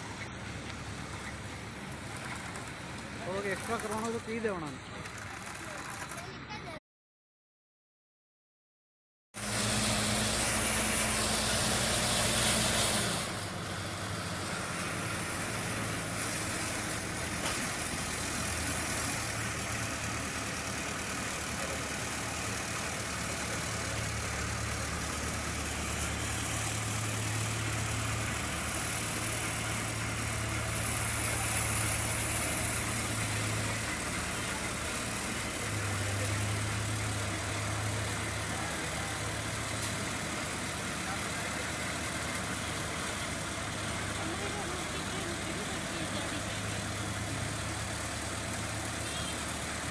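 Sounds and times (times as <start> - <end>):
diesel engine running: 0.0 - 6.7, 9.4 - 49.9.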